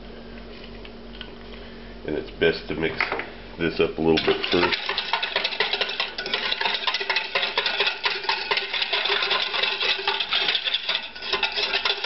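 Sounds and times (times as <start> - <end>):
wire whisk scraping metal bowl: 4.1 - 12.0.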